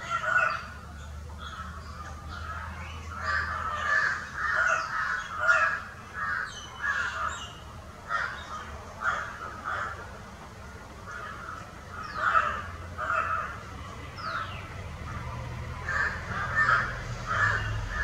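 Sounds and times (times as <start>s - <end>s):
crow cawing: 3.2s - 7.5s, 8.1s - 10.1s, 11.1s - 13.7s, 15.8s - 18.0s.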